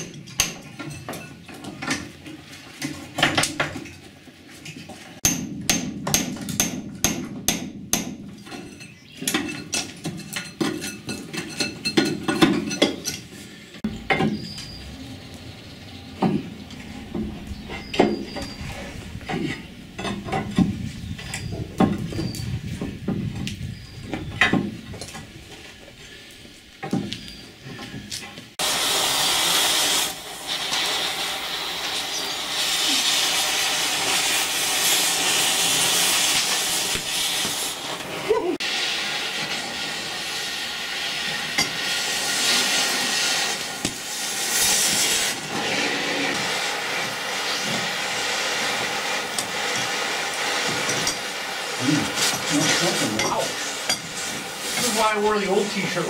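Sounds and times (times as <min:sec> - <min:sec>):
cutting torch hissing: 0:13.4 - 0:27.4, 0:28.6 - 0:56.0
metal bar knocking and scraping: 0:16.2 - 0:23.3.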